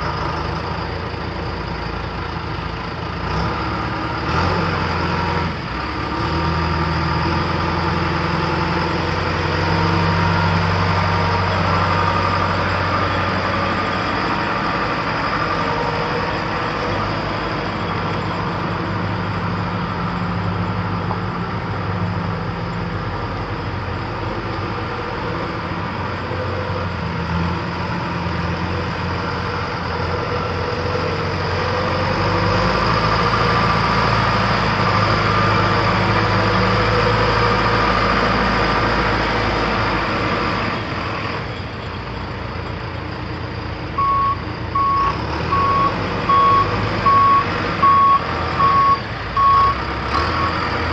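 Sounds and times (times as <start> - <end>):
diesel engine running: 0.0 - 50.9
backup alarm beeps: 44.0 - 49.8.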